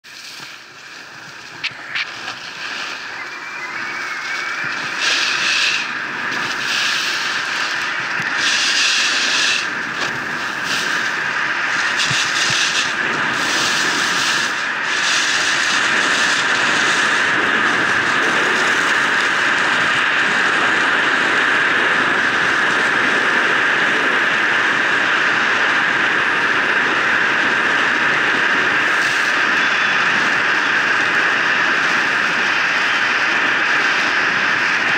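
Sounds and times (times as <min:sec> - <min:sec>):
skis scraping snow: 0:00.0 - 0:20.0, 0:28.0 - 0:34.9
wind rushing over camera: 0:00.0 - 0:34.9.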